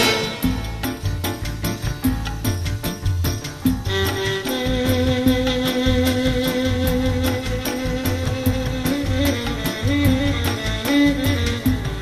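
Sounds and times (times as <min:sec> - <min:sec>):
instrumental background music: 0:00.0 - 0:12.0.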